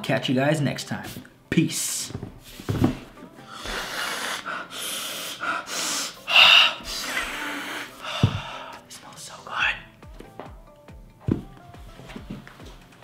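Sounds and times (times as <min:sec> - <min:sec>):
man sniffing hard: 0:03.5 - 0:08.8.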